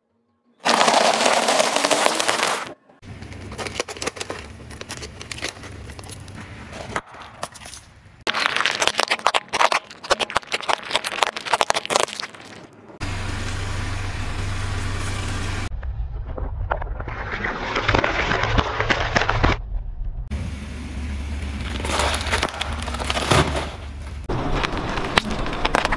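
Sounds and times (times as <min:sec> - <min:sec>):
eggs crackling under tyre: 0:00.6 - 0:13.0, 0:21.6 - 0:25.9
objects crunching under car tyre: 0:00.6 - 0:13.1, 0:15.7 - 0:19.7, 0:21.5 - 0:25.9
car rumbling: 0:12.8 - 0:16.7, 0:20.0 - 0:25.9.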